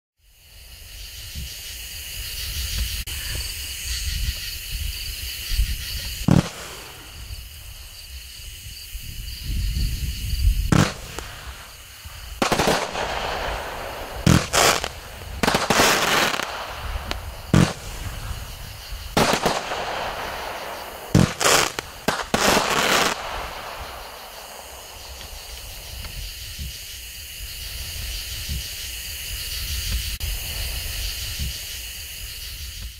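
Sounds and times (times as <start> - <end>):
firework hissing: 0.9 - 32.9
firework bangs: 6.0 - 8.0, 10.6 - 26.9.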